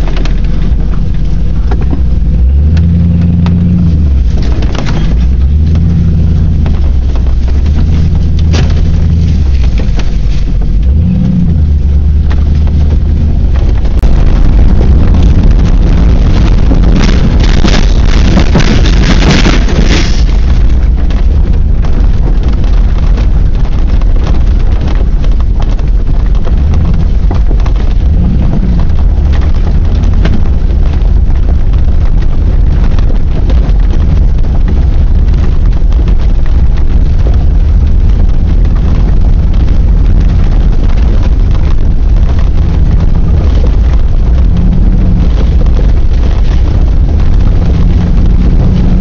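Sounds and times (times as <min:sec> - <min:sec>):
vehicle rumbling over gravel: 0:00.0 - 0:49.0
wind noise: 0:00.0 - 0:49.0
jolts and knocks: 0:12.2 - 0:49.0.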